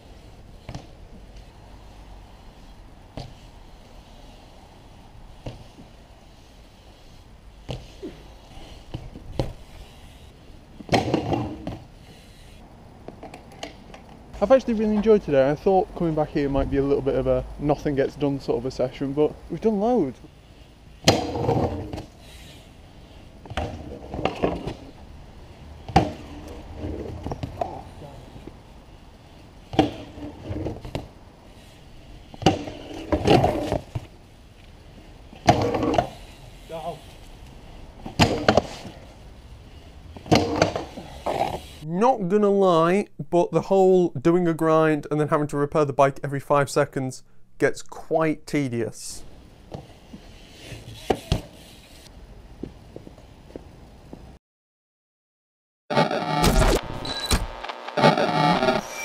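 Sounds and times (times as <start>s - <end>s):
bike clattering on concrete: 0.6s - 1.5s, 2.5s - 3.5s, 5.3s - 6.0s, 7.6s - 15.1s, 21.0s - 25.0s, 25.8s - 28.5s, 29.6s - 37.3s, 38.0s - 39.2s, 40.1s - 41.8s
bike landing knocks on concrete: 10.8s - 11.8s, 25.9s - 26.2s.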